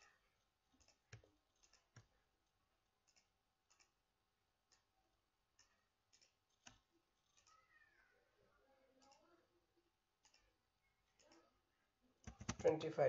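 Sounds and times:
computer mouse clicks: 5.6 - 7.6, 10.2 - 10.5, 12.2 - 12.8.

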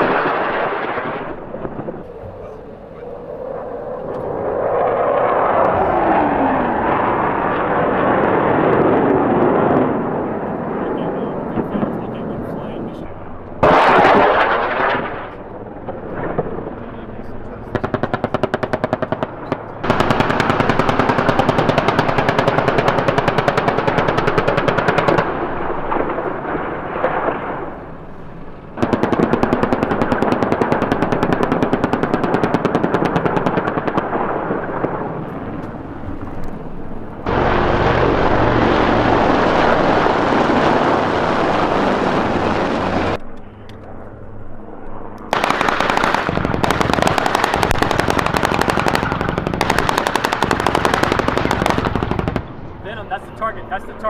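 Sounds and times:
automatic gunfire: 17.8 - 25.4, 45.3 - 52.5.

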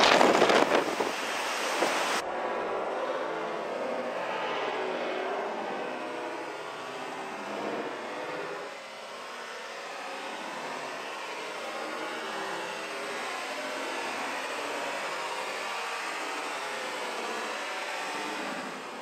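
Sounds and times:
storm wind rushing: 0.0 - 2.2.

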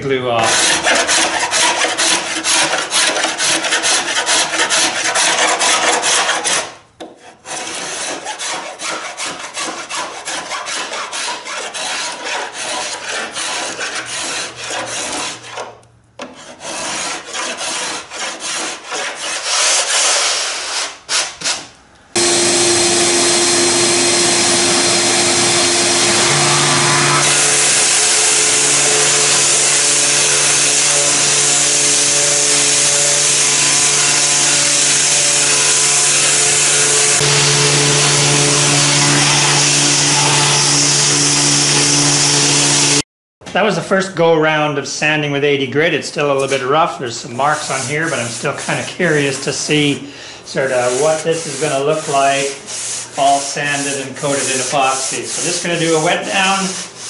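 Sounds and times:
hand scraper scraping wood: 0.4 - 43.0, 46.4 - 49.8, 50.6 - 57.0
orbital sander running: 22.2 - 43.0.

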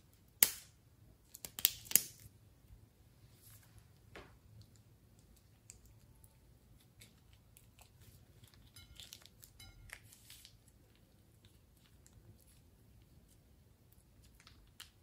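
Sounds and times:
low room hum: 0.0 - 15.0
plastic piping bag crinkling: 4.5 - 15.0.

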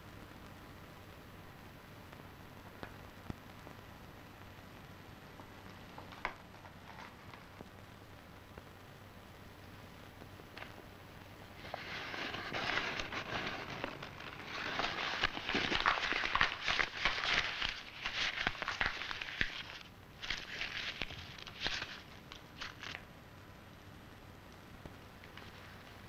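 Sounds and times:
paper rustling and crinkling: 6.0 - 7.5, 11.6 - 23.0.

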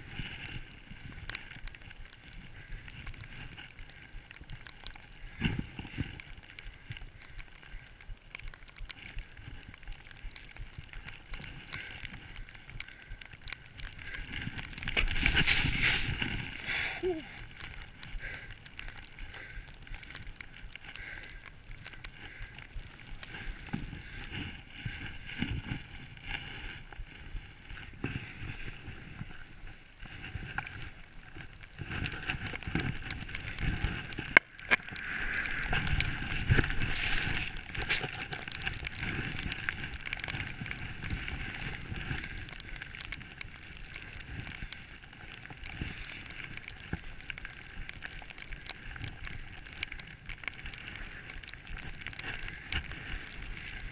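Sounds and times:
skis rushing through powder snow: 13.9 - 18.4, 22.0 - 47.7
wind noise on microphone: 14.0 - 17.6, 23.2 - 46.7.

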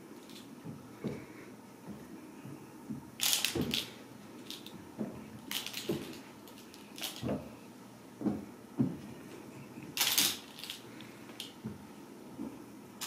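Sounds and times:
toy ball rattling: 3.2 - 4.8, 5.4 - 7.3, 10.0 - 11.5.

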